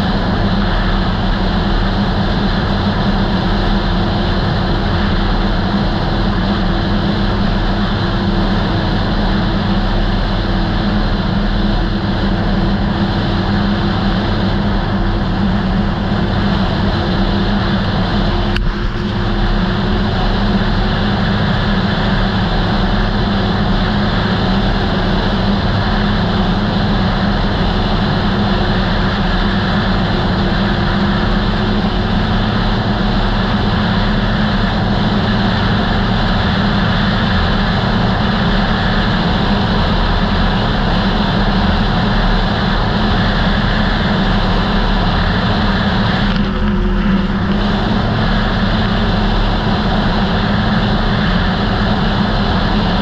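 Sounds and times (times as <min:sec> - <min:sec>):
snowmobile engine running: 0:00.0 - 0:53.0
snowmobile track noise: 0:00.0 - 0:53.0
wind on microphone: 0:00.0 - 0:53.0.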